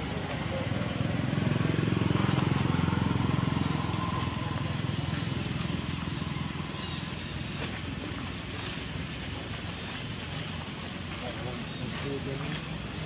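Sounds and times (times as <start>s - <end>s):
small motorbike engine running: 0.0s - 7.1s.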